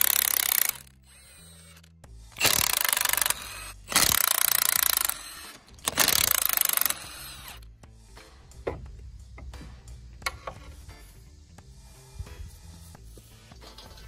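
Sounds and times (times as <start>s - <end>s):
impact wrench rattling: 0.0s - 7.6s.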